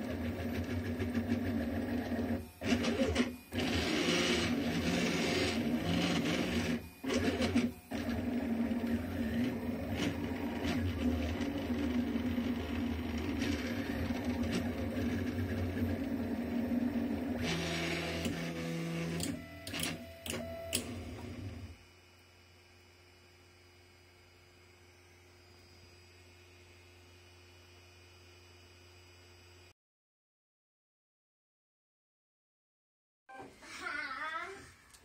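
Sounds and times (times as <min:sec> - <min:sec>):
stepper motors whirring: 0:00.1 - 0:21.8.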